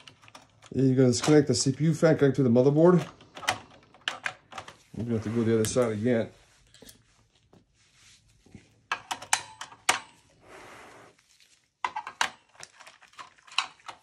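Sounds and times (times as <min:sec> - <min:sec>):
soft scrape: 0:05.0 - 0:08.7, 0:10.4 - 0:11.6.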